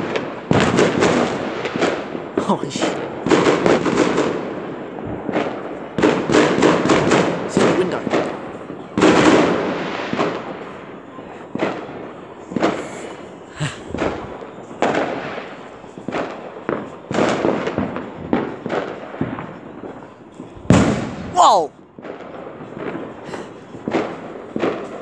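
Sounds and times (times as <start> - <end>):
fireworks bangs: 0.0 - 25.0.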